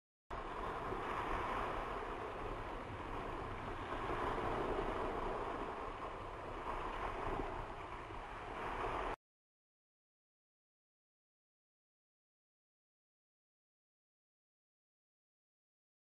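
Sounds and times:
sea surf: 0:00.3 - 0:09.2
wind: 0:00.3 - 0:09.2.

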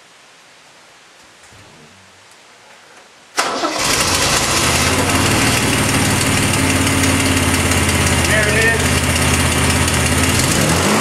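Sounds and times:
car engine starting and idling: 0:03.3 - 0:11.0.

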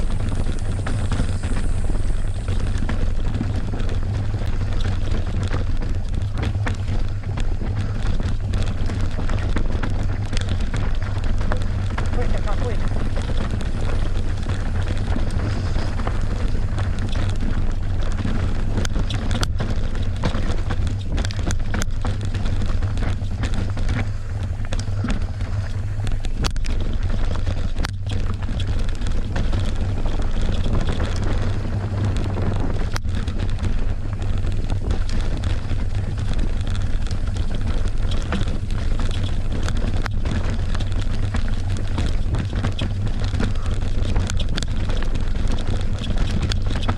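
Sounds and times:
mountain bike on rough trail: 0:00.0 - 0:46.9
wind buffeting microphone: 0:00.0 - 0:46.9.

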